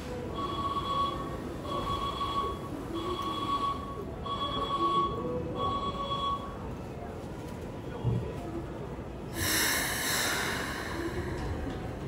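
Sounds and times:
electronic warning beeps: 0.3s - 6.6s.

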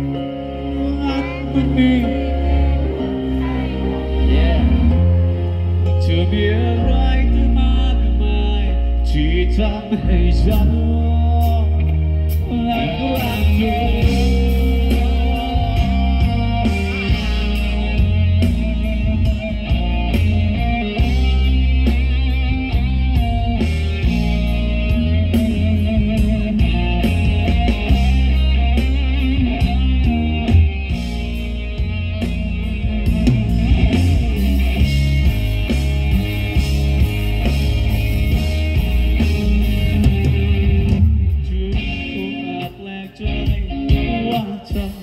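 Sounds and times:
bass guitar: 0.0s - 45.0s
electric guitar: 0.0s - 45.0s
drums: 2.8s - 45.0s.

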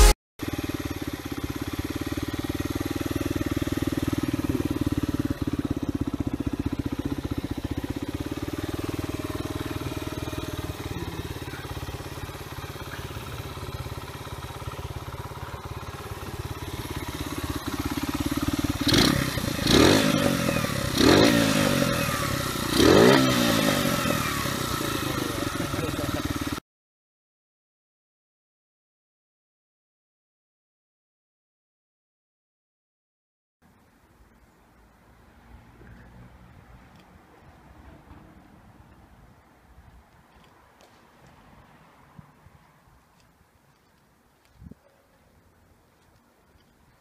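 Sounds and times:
motorcycle engine idling: 0.0s - 26.6s
motorcycle engine revving: 0.0s - 26.6s.

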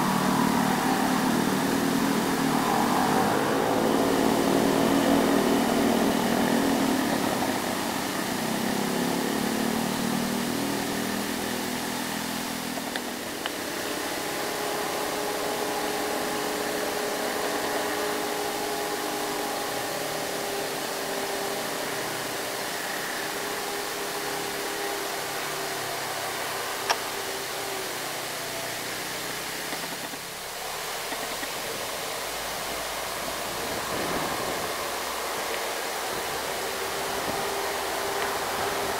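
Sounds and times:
diesel truck engine running: 0.0s - 26.9s
constant background hiss: 0.0s - 38.9s
motorcycles passing: 0.0s - 38.9s.

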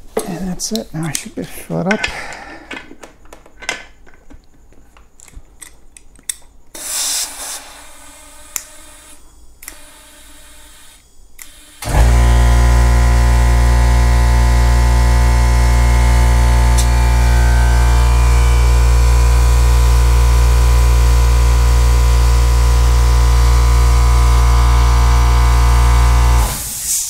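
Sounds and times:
short hiss of air: 6.8s - 8.2s, 26.6s - 27.0s
air compressor humming: 6.8s - 10.8s, 11.4s - 27.0s.

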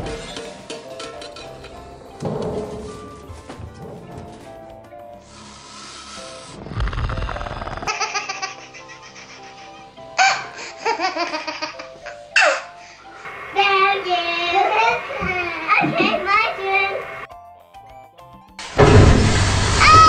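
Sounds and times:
music with sustained tones: 0.0s - 6.7s, 7.9s - 20.0s
breathy hiss: 5.0s - 7.9s, 12.4s - 17.3s, 18.6s - 20.0s
child laughing: 7.9s - 12.7s.

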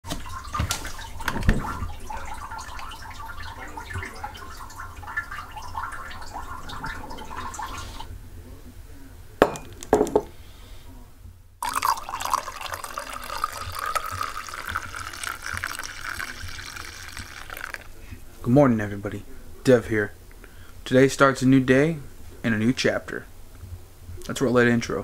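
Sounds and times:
running water: 0.0s - 8.1s, 11.6s - 18.0s
coffee pouring into mug: 0.1s - 8.1s, 11.6s - 18.1s
ceramic mug knocking on wooden table: 9.4s - 10.3s.

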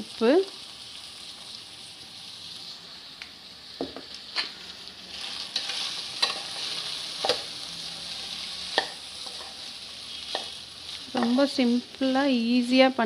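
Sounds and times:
rice sizzling in hot oil: 0.0s - 13.0s
spoon knocking metal pan: 8.8s - 9.0s, 10.3s - 11.4s.

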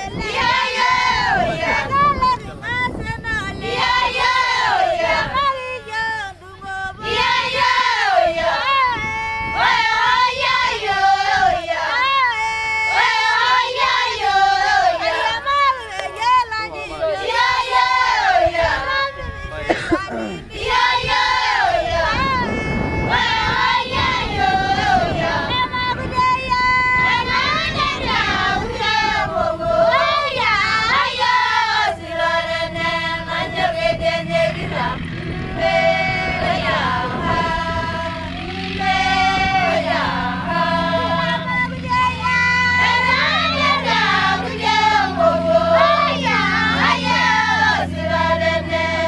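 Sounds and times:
women and children singing: 0.0s - 49.0s.

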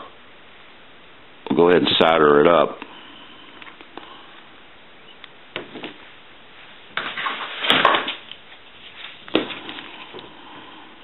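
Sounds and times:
rustling scrape: 6.6s - 10.2s.

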